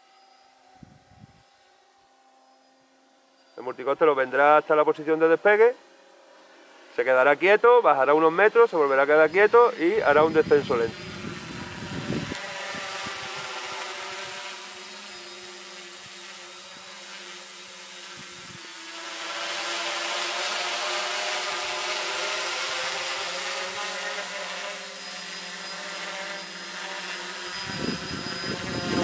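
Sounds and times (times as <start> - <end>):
drone propellers buzzing: 0.0 - 29.0.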